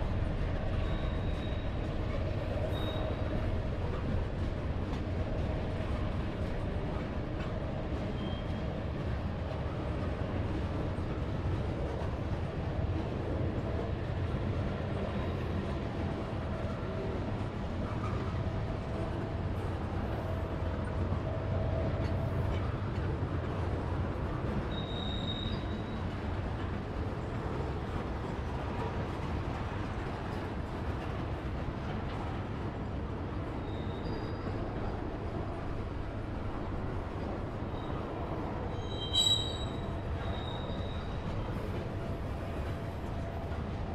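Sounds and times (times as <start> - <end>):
train wheels rumbling on rails: 0.0 - 43.9
high wheel squeals: 2.7 - 3.2, 24.7 - 26.0, 33.6 - 34.6, 38.7 - 41.2.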